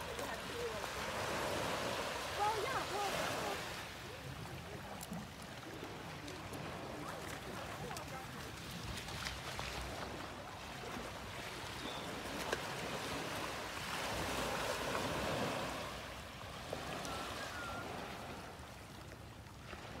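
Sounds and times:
waves washing against rocks: 0:00.0 - 0:10.4.

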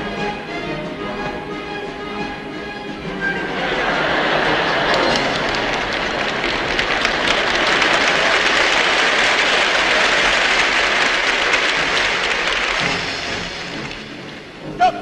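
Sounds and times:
audience applauding: 0:03.5 - 0:14.6.

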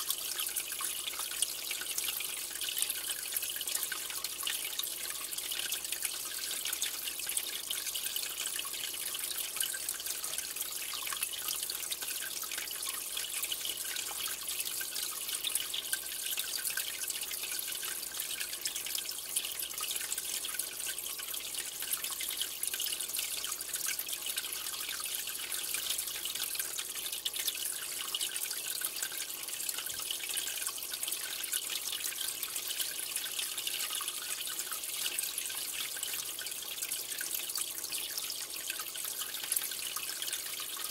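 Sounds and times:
water trickling and bubbling: 0:00.0 - 0:40.9.

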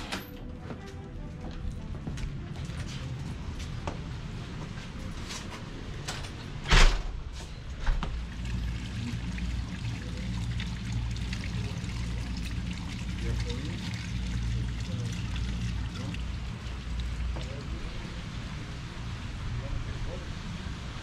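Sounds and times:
pond water trickling: 0:08.1 - 0:18.8.

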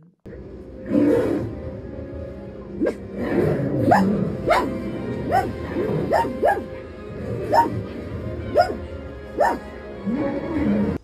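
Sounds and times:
soundtrack music from television: 0:00.3 - 0:11.0
small dog barking: 0:03.9 - 0:06.7, 0:07.5 - 0:07.7, 0:08.5 - 0:08.8, 0:09.4 - 0:09.6.

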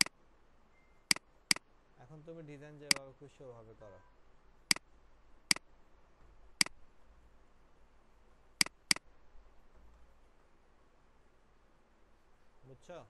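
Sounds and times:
computer mouse clicking: 0:08.6 - 0:09.0.

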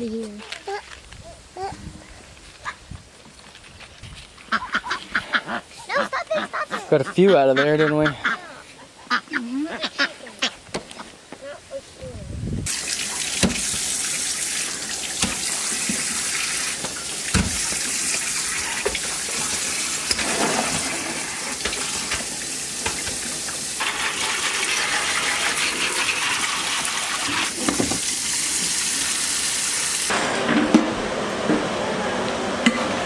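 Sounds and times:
water splashing off leaves: 0:12.7 - 0:24.1
faucet running into sink: 0:12.7 - 0:30.1.

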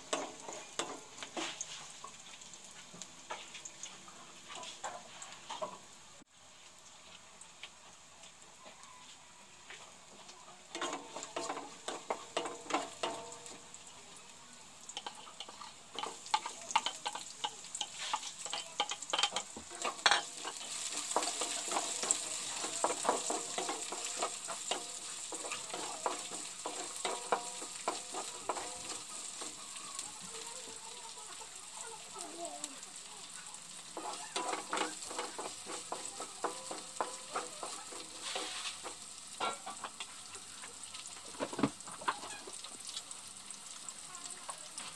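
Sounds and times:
wooden spatula scraping frying pan: 0:00.0 - 0:02.2, 0:15.0 - 0:29.6, 0:33.9 - 0:40.2
garlic sizzling in hot oil: 0:00.0 - 0:44.9.

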